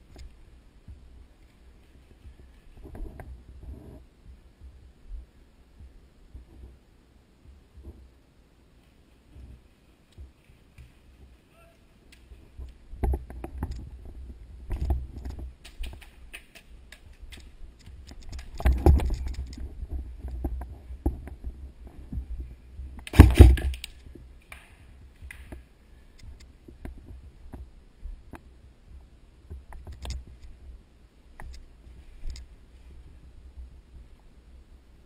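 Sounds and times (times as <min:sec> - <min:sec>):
gear rattling against camera: 0:12.2 - 0:22.3, 0:23.0 - 0:24.2.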